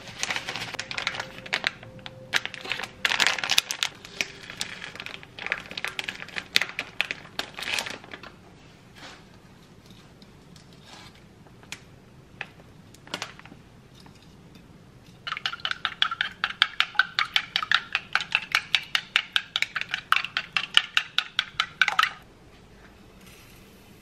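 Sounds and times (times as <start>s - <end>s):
chopsticks beating eggs in bowl: 15.2s - 22.2s.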